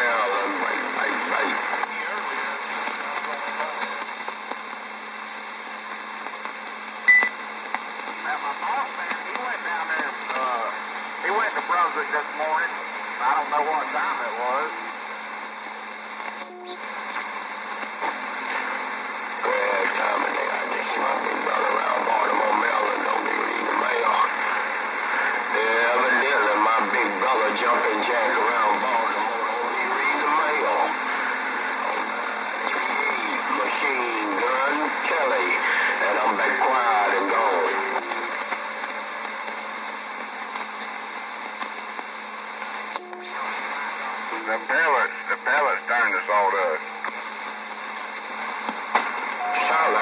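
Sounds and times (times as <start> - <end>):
garbled radio voices: 0.0 - 4.7, 7.1 - 15.3, 16.1 - 50.0
radio static hiss: 0.0 - 50.0
short beep: 49.4 - 49.9
short low tone: 49.4 - 50.0.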